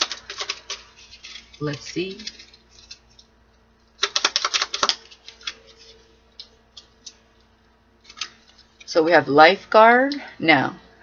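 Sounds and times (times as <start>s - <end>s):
cards shuffling: 0.0s - 3.4s, 4.0s - 7.2s, 8.0s - 8.9s.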